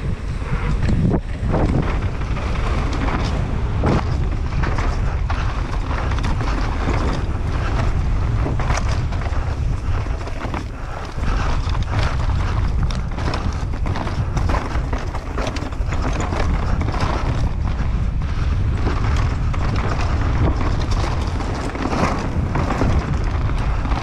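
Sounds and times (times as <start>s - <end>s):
bike knocking and rattling: 0.0s - 24.0s
tyres rolling over trail: 0.0s - 24.0s
wind rushing over microphone: 0.0s - 24.0s.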